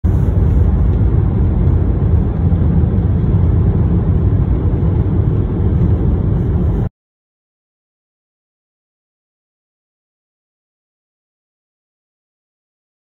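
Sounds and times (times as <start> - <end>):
car driving heard from cabin: 0.0 - 6.9.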